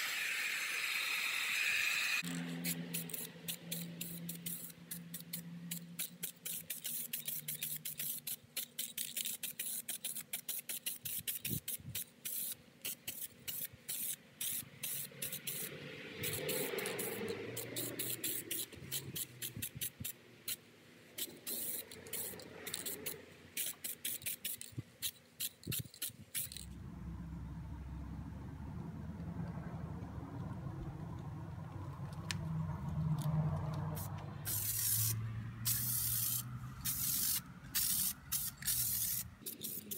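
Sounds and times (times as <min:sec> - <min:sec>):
spray paint can hissing: 0:00.0 - 0:26.7, 0:33.9 - 0:39.9.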